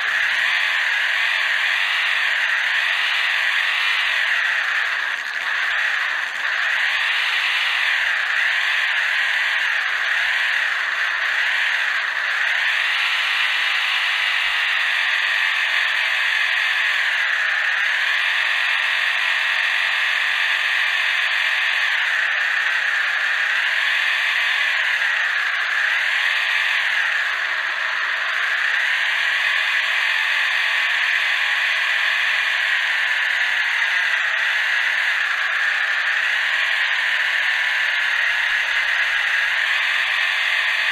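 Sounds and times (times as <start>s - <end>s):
toy car electric motor whining: 0.0s - 40.9s.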